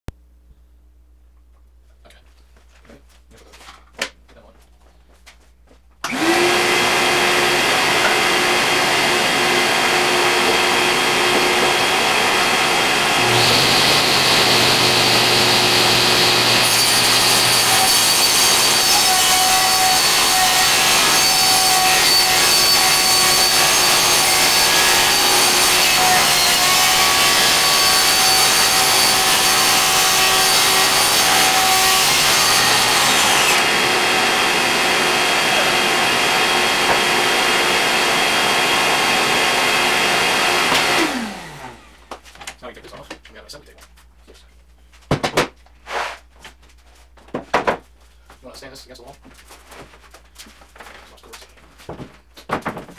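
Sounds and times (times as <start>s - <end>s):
power saw cutting plywood: 6.0s - 42.0s.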